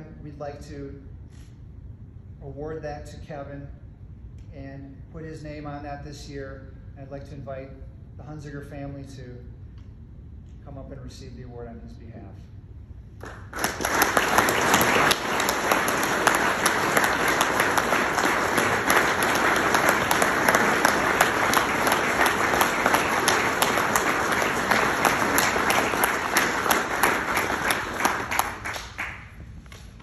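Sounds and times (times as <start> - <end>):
audience applauding: 13.2 - 29.5.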